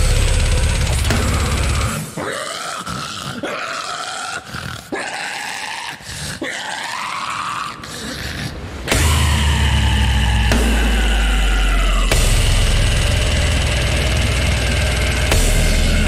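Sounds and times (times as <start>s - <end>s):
heavy metal band playing: 0.0s - 2.2s, 8.9s - 16.0s
guttural growls and squeals: 0.0s - 16.0s.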